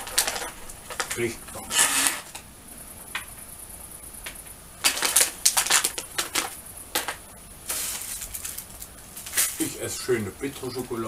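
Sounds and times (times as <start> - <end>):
plastic bag crackling and rustling: 0.0 - 2.4, 4.8 - 9.9.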